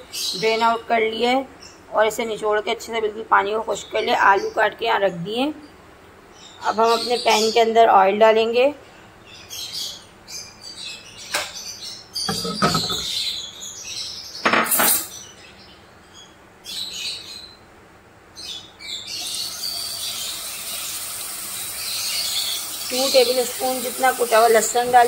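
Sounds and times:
birds chirping: 0:00.0 - 0:14.4, 0:18.4 - 0:25.0
utensils knocking on frying pan: 0:12.3 - 0:13.1
garlic sizzling in hot oil: 0:19.5 - 0:25.0.

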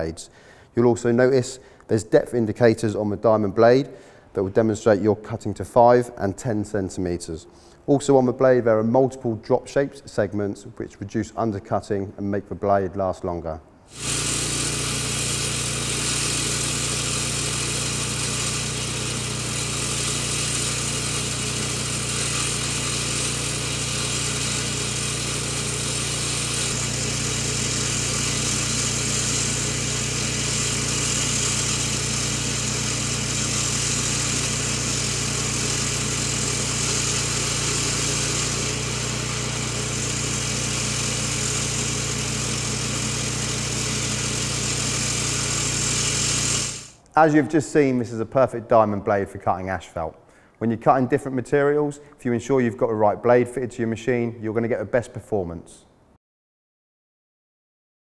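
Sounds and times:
petrol engine running: 0:13.9 - 0:47.0
saw blade grinding asphalt: 0:13.9 - 0:47.0.

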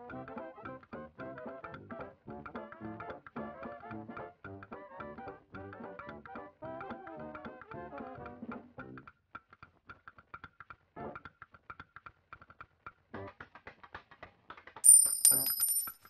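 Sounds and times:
plucked-string background music: 0:00.0 - 0:09.2.

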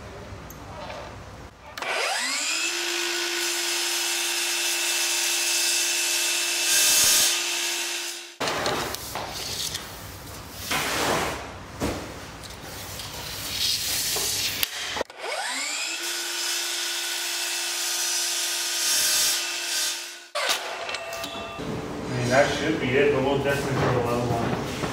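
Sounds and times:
miter saw motor whining and cutting: 0:01.8 - 0:08.4, 0:14.7 - 0:21.4.

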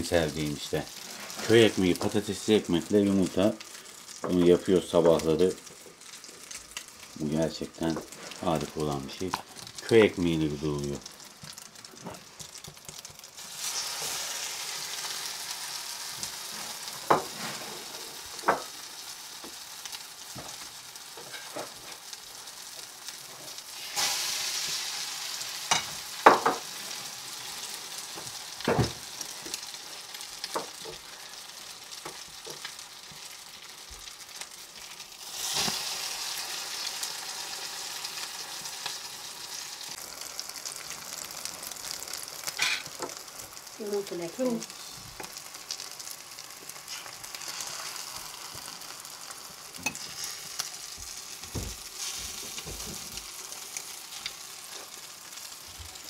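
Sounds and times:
bread frying in a pan: 0:00.0 - 0:56.0.

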